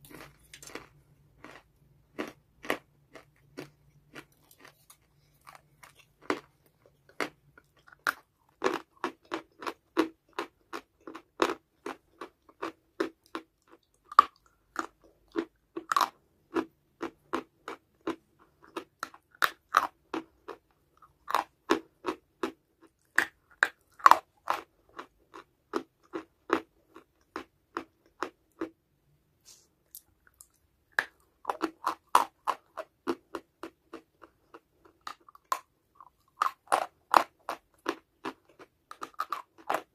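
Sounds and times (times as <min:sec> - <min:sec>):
crisp crunching of chewing: 0:00.0 - 0:28.7, 0:29.9 - 0:39.9.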